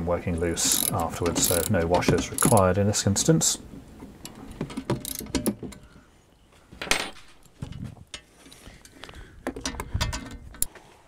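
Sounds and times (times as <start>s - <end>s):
metallic clicks of nut tightening: 0.6s - 2.7s, 4.2s - 5.8s, 8.1s - 10.7s.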